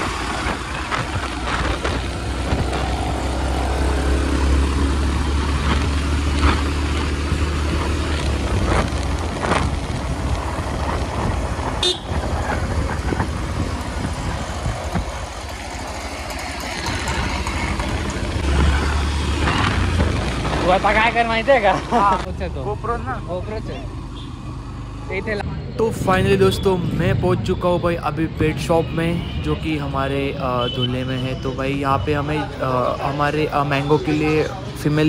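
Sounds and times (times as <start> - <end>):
motorcycle engine: 0.0 - 25.9
wind and road noise: 0.0 - 35.0
vehicle horns honking: 11.8 - 12.2, 24.1 - 24.4.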